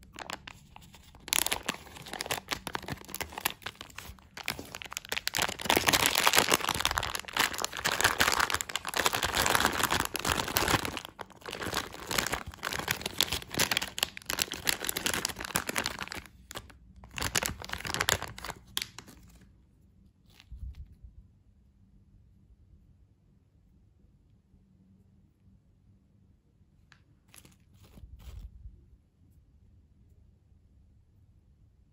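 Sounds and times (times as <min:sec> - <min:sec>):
plastic bag crinkling: 0:00.0 - 0:19.4.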